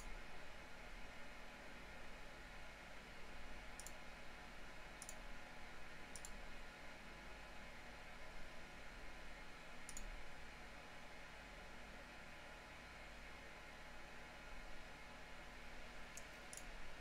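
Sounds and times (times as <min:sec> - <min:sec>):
room hiss and hum: 0:00.0 - 0:17.0
computer mouse clicks: 0:03.8 - 0:04.0, 0:05.0 - 0:05.2, 0:06.1 - 0:06.4, 0:09.9 - 0:10.1, 0:16.1 - 0:16.7.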